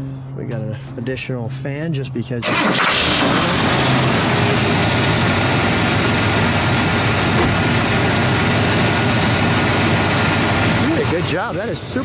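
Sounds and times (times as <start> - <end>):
car engine idling: 2.4 - 12.0.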